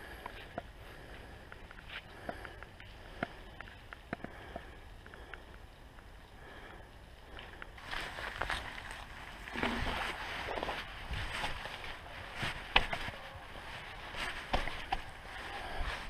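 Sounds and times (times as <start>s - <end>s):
faint clicks: 1.4s - 6.1s
wind rumble on microphone: 7.8s - 16.0s.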